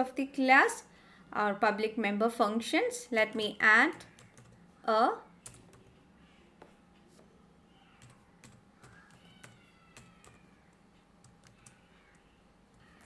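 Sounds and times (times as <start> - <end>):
typing on keyboard: 3.9 - 4.6, 5.4 - 6.0, 8.0 - 13.0.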